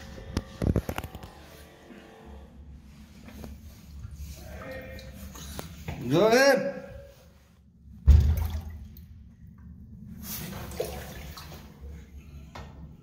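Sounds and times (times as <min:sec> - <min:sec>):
water sloshing and gurgling: 0:02.8 - 0:05.9, 0:07.1 - 0:12.2
heavy thump in drain line: 0:08.0 - 0:08.8.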